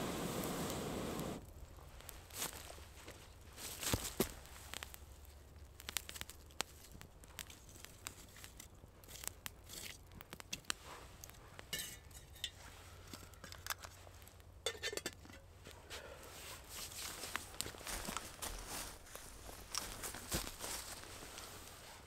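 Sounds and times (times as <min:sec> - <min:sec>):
metal cookware clinking: 0:11.7 - 0:12.6, 0:14.6 - 0:15.4.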